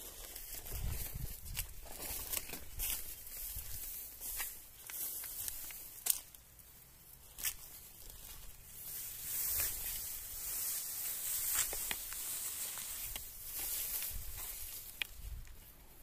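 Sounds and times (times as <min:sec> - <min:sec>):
footsteps through tall grass: 0:00.0 - 0:06.4, 0:07.2 - 0:16.0.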